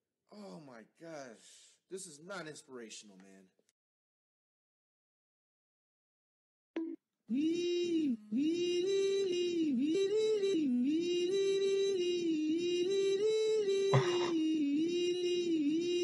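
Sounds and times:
person singing wordless tune: 7.3s - 16.0s.

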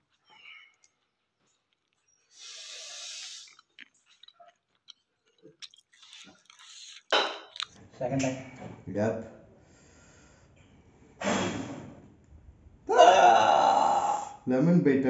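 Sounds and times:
man sipping and gulping: 0.0s - 7.8s
man hissing breath: 2.3s - 3.5s, 11.2s - 11.8s.

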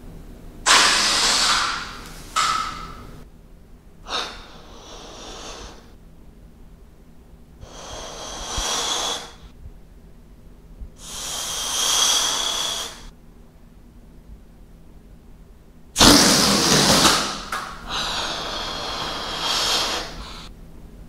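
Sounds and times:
air puffs into balloon: 0.7s - 3.2s, 7.6s - 9.5s, 11.0s - 13.1s, 16.0s - 20.5s.

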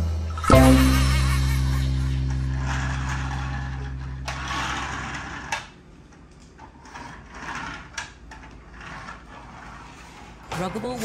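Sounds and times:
low steady hum: 0.0s - 6.7s
toy car rolling on wooden floor: 1.4s - 11.0s.

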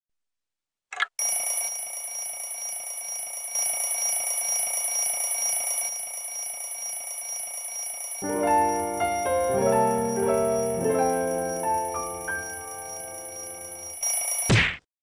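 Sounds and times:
cartoon alarm clock ringing: 1.2s - 14.5s
tinkling music melody: 6.0s - 14.0s.

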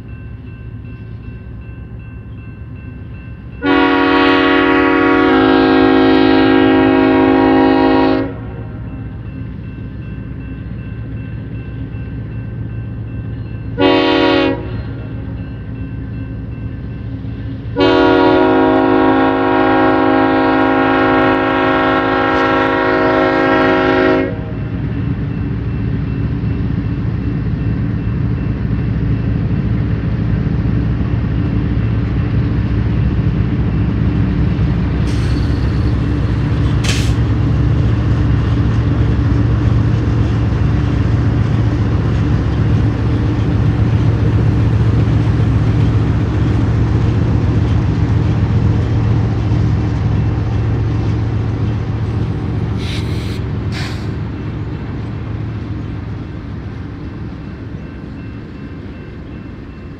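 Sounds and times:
diesel locomotives passing: 0.0s - 59.9s
locomotive air horn blasts: 3.6s - 8.7s, 13.8s - 15.2s, 17.8s - 24.6s.

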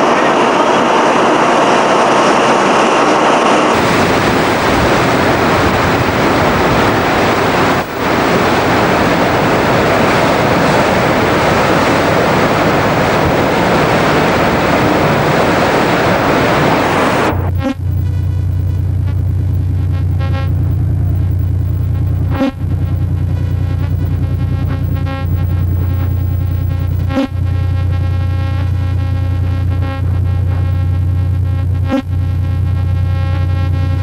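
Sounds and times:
ship machinery running: 0.0s - 27.1s
wind buffeting microphone: 3.6s - 17.5s.

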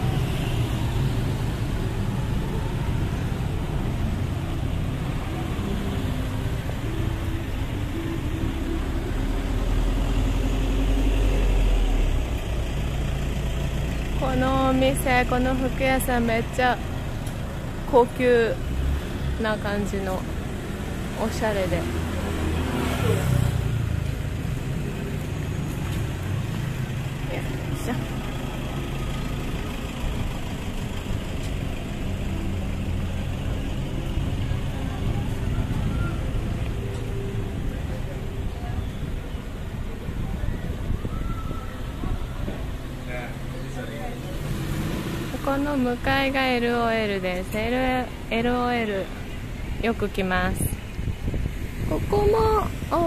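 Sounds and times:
car engines humming in traffic: 0.0s - 53.0s.

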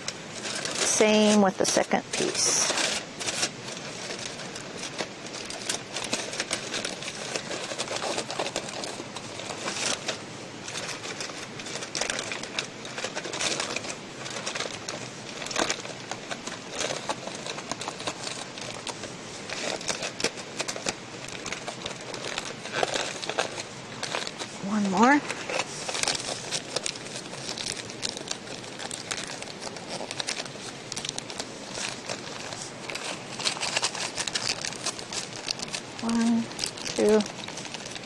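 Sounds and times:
aluminium foil crinkling: 0.0s - 38.0s.

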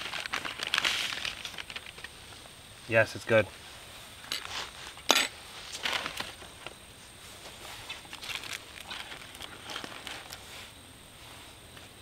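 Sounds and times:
packaging crinkling and rustling: 0.0s - 2.1s, 5.7s - 6.7s, 7.9s - 10.5s.

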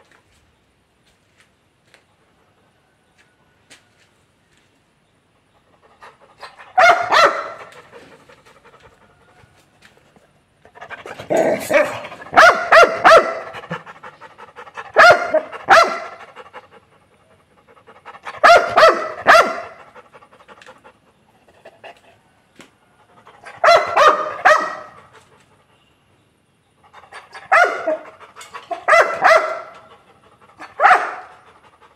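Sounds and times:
dog barking: 6.4s - 7.8s, 11.4s - 13.9s, 14.9s - 16.3s, 18.2s - 19.9s, 23.4s - 25.0s, 27.3s - 29.8s, 30.6s - 31.4s.

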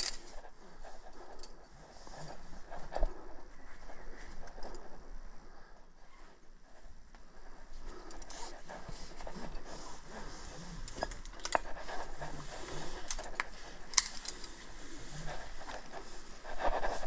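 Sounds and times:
carabiners clinking: 0.0s - 0.4s, 13.0s - 14.7s
rope and clothing rustling: 0.0s - 17.0s.

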